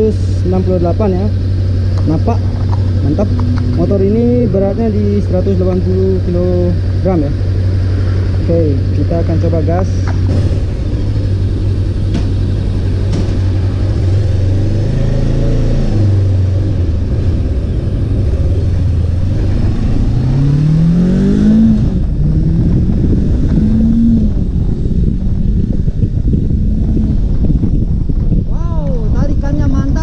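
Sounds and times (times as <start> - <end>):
motorcycle engine revving: 0.0 - 28.4.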